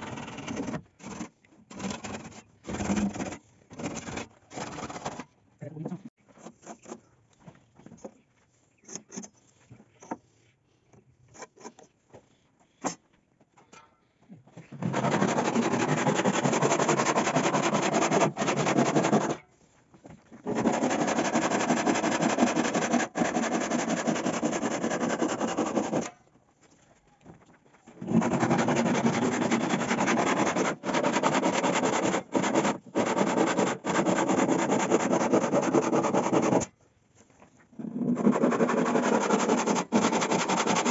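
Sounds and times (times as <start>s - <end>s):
handsaw cutting wood: 0.0s - 5.2s, 14.8s - 19.4s, 20.4s - 26.1s, 28.0s - 36.7s, 37.9s - 40.9s.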